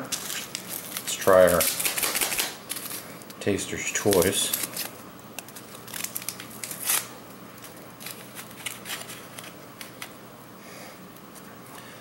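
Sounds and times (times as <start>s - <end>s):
packet tearing open: 0.1s - 3.0s, 4.0s - 7.1s
foil packet crinkling: 0.1s - 10.2s.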